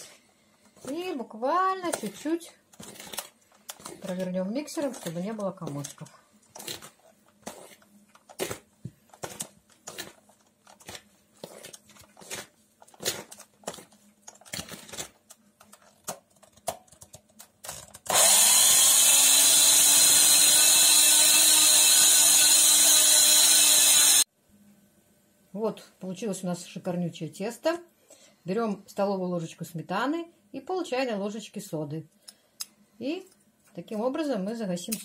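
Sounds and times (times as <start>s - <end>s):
electric hand mixer motor: 18.1s - 24.3s.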